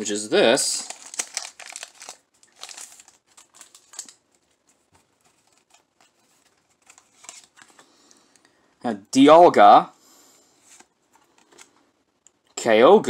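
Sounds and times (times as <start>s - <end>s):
foil wrapper rustling and crinkling: 0.5s - 7.8s
cards being handled: 0.8s - 7.9s.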